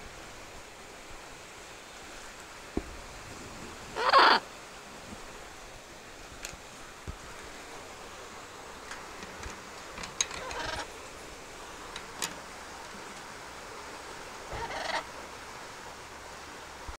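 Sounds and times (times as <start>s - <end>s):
parrot harsh calls: 4.0s - 4.4s, 10.4s - 10.9s, 14.5s - 15.1s.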